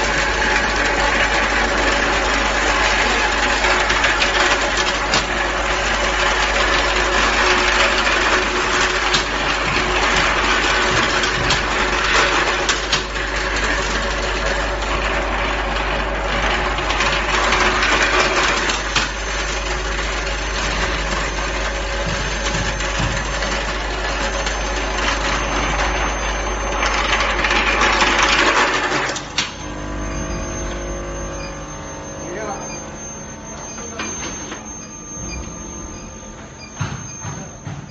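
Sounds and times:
machine hum: 0.0 - 37.9
machine running noise: 0.0 - 37.9
thin high whine: 18.4 - 37.9.

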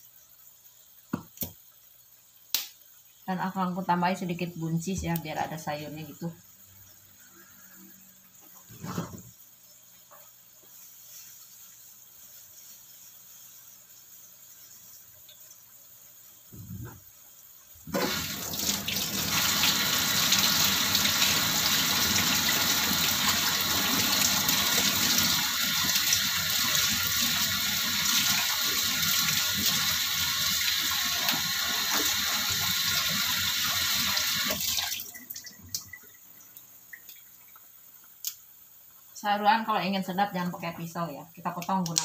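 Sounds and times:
kitchen tap running: 17.8 - 38.4.

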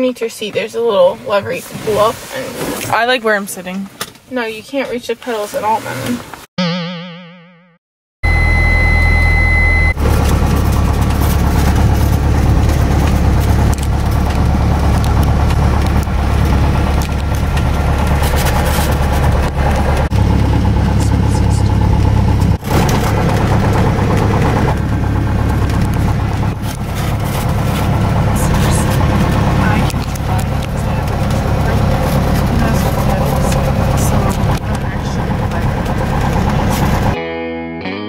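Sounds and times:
steady high beep: 8.2 - 10.0
propeller plane engine running: 9.8 - 37.2.

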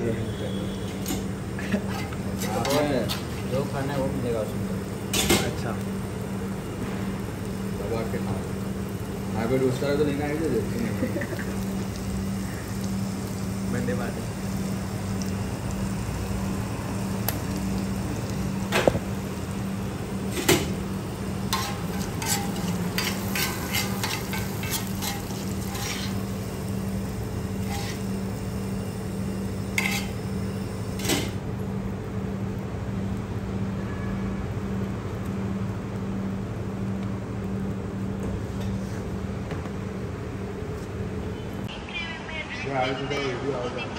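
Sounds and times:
spatula scraping on iron griddle: 1.0 - 3.7, 21.4 - 28.4, 29.6 - 31.4.

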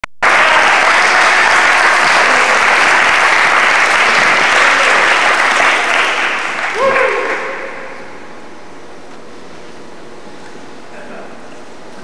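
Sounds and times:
audience applauding: 0.2 - 8.1.

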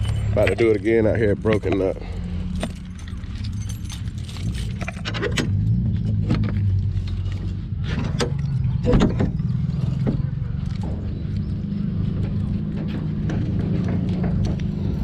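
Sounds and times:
keys jangling: 0.0 - 5.8
low engine hum: 0.0 - 15.0.

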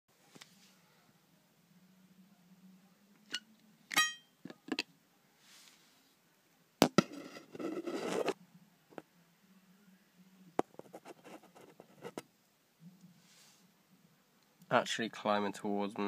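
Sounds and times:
short glassy ring: 3.3 - 4.4
rubbing and scraping: 7.0 - 8.4.

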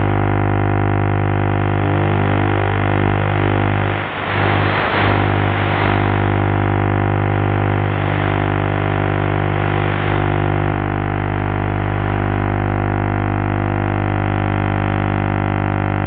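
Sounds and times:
droning buzz of even tones: 0.0 - 16.0
rush of hiss: 3.8 - 6.8.

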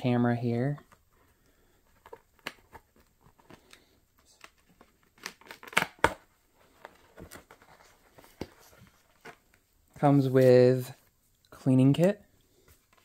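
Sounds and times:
packaging crinkling and tearing: 5.0 - 6.2.

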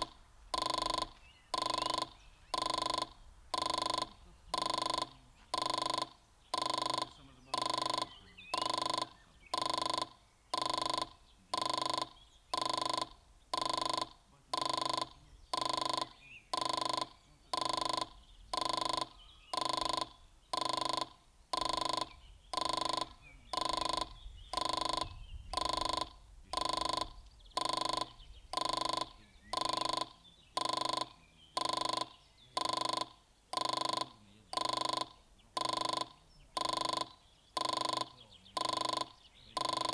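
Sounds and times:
faint bird chirps: 0.0 - 39.9
level-crossing warning ding: 0.6 - 39.9.

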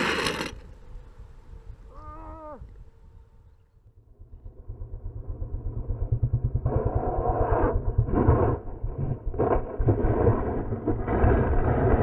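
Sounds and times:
harsh rough engine sound: 0.0 - 0.8
motorcycle engine approaching: 4.1 - 12.0.

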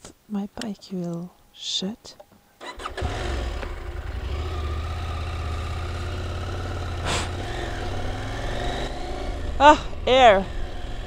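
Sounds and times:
motorcycle engine at low revs: 2.6 - 11.0.

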